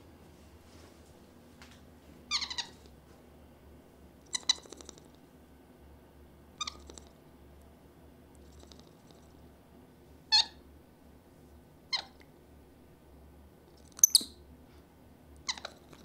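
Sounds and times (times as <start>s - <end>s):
monkey squeaky calls: 2.3s - 2.8s, 14.0s - 14.4s.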